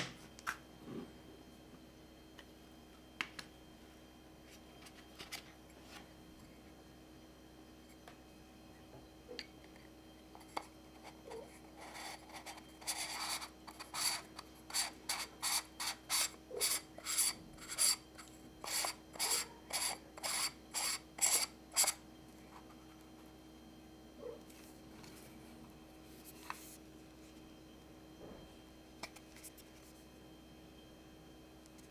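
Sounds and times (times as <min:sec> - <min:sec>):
filter ring threads scraping: 0:10.3 - 0:22.0.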